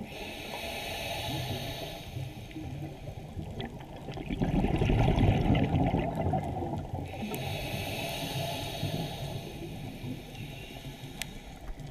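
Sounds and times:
low underwater rush: 0:00.0 - 0:11.9
underwater bubbling and gurgling: 0:00.0 - 0:11.9
faint clicks: 0:10.3 - 0:11.9.

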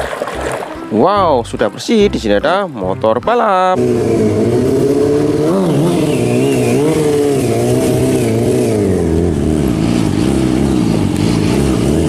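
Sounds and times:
motorcycle engine revving: 0:03.7 - 0:12.0.

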